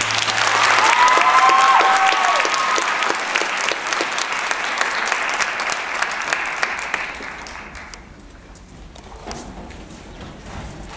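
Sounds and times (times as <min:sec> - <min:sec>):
audience applauding: 0:00.0 - 0:08.1.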